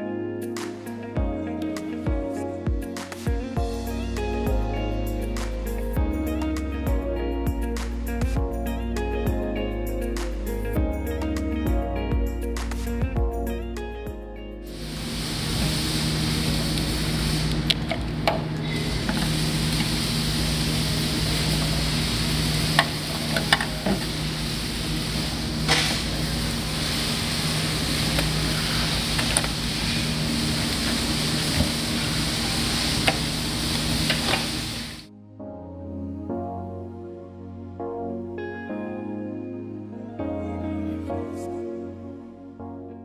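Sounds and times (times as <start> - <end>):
workshop low hum: 1.6 - 35.1.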